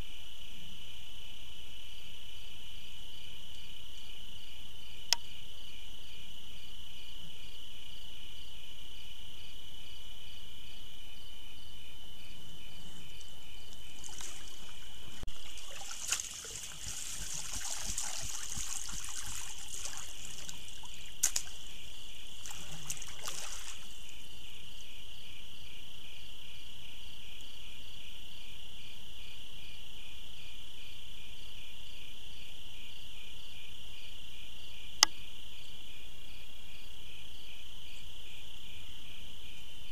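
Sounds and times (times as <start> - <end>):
pulsing cricket chorus: 0.0 - 39.9
water sloshing and trickling: 13.7 - 24.0.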